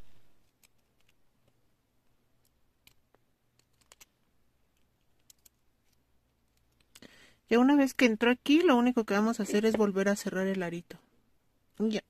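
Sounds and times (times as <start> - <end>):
small metal clicks: 2.4 - 4.1, 4.7 - 7.0.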